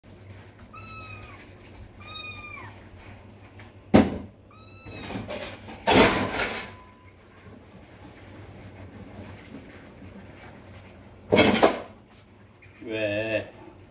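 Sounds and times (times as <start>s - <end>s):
kitten mewing: 2.0s - 2.8s
dishes clattering: 11.3s - 12.0s.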